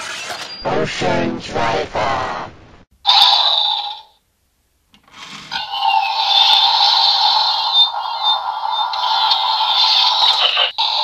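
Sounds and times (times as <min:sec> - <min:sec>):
high-pitched electronic standby loop: 0:06.0 - 0:11.0.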